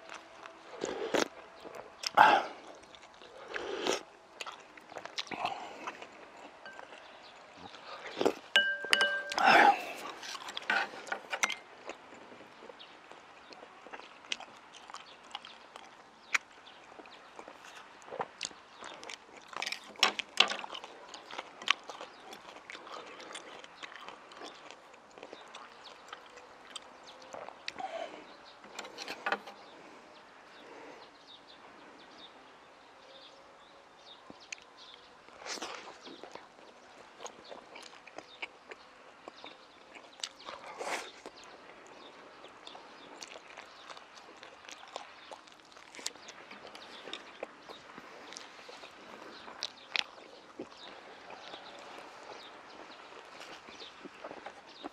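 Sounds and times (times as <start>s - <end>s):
chewing and mouth sounds: 0.0s - 29.8s, 34.1s - 54.9s
chopsticks clicking on dishes: 8.6s - 9.6s.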